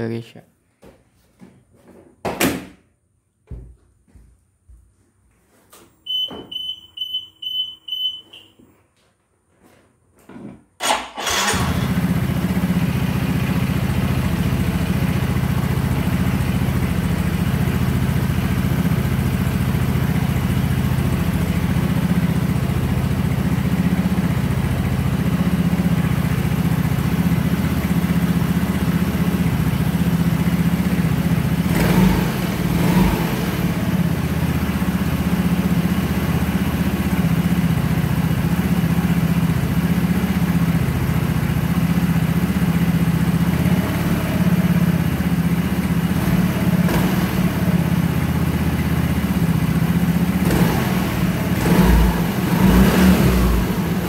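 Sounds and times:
short high beeps: 6.1s - 8.6s
scooter engine starting and idling: 10.8s - 54.0s.

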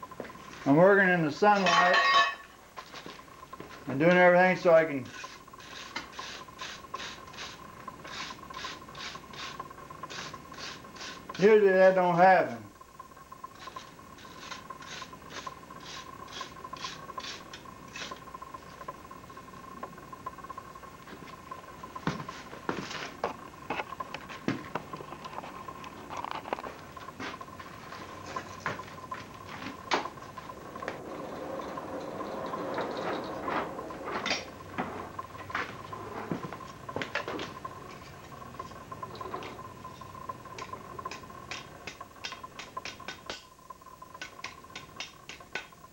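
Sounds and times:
faint high whine: 0.0s - 45.9s
metal tools clinking on anvil: 1.5s - 2.6s
file scraping steel: 5.1s - 11.2s.

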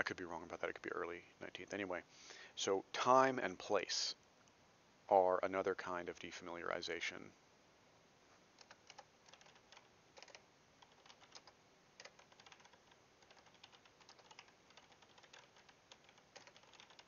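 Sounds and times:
typing on a keyboard: 8.6s - 17.0s.

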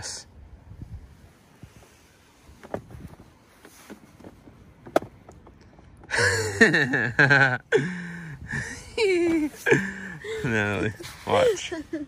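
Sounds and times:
car seat click: 2.6s - 5.5s.

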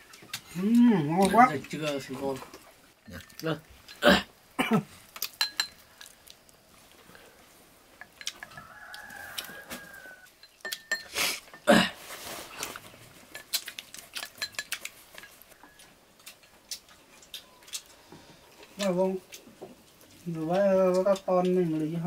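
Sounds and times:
chopsticks and bowls clinking: 5.2s - 6.1s, 8.0s - 8.7s, 10.3s - 11.7s, 13.3s - 16.5s
rooster crowing: 8.4s - 10.3s.

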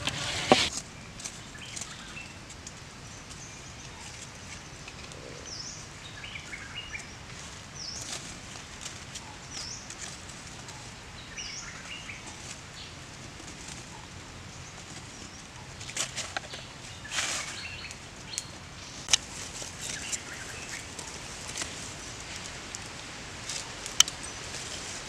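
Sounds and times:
stick scraping and clicking embers: 0.0s - 5.2s, 14.8s - 25.0s.

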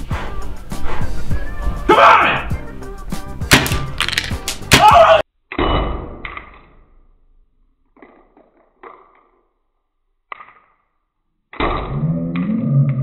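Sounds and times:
loud paintball hit: 3.5s - 4.0s, 4.6s - 5.2s
slowed-down deep cry: 11.8s - 13.0s.

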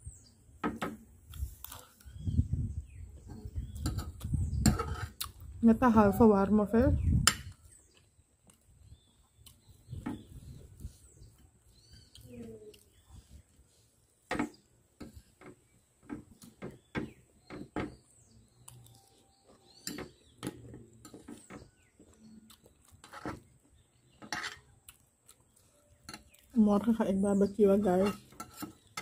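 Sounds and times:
chewing: 7.9s - 9.7s, 18.6s - 19.8s, 21.9s - 23.1s, 24.6s - 26.5s
faint bird chirps: 8.8s - 13.8s.

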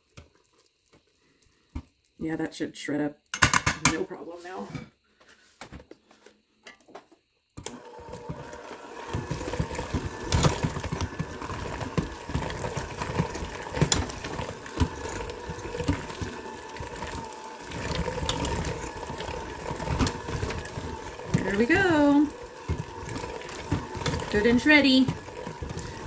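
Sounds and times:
electric hand mixer running: 7.6s - 26.0s.

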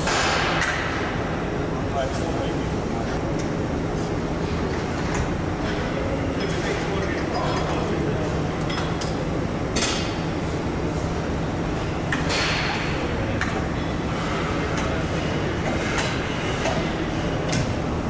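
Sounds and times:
machinery hum: 0.0s - 18.0s.

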